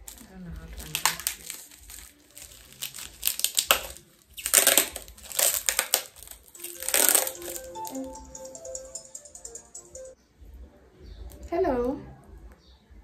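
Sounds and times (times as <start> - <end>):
packaging crinkling and tearing: 0.0 - 7.8
faint tune: 6.5 - 10.5.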